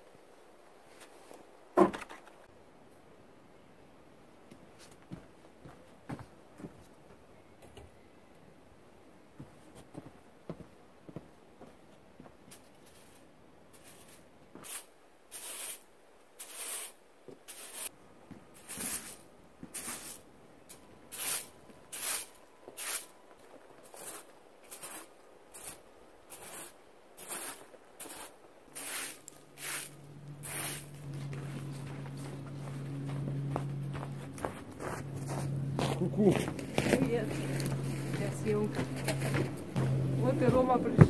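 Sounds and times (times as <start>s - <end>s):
broom sweeping frozen ground: 12.8s - 17.9s, 18.5s - 20.3s, 21.1s - 32.2s
low steady hum: 29.2s - 41.0s.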